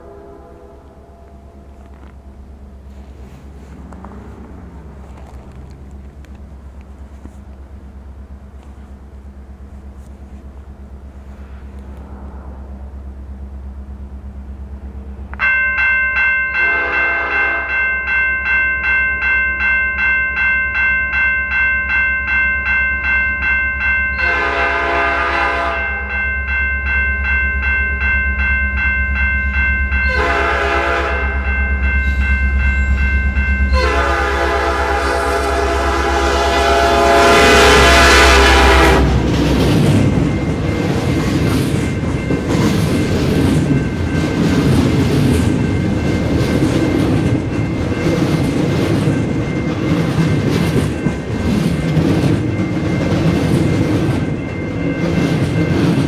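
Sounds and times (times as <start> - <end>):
locomotive air horn blasts: 0.0 - 1.7, 16.6 - 17.7, 24.2 - 26.1, 30.1 - 31.4, 33.7 - 39.3
locomotive engine rumble: 0.0 - 17.6, 23.7 - 56.0
train wheels on rails: 0.8 - 56.0
level crossing bell ringing: 15.4 - 24.8, 25.6 - 35.0.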